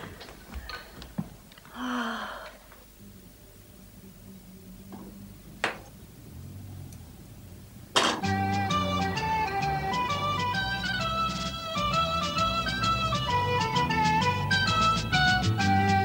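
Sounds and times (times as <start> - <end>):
lively folk music: 8.2 - 16.0.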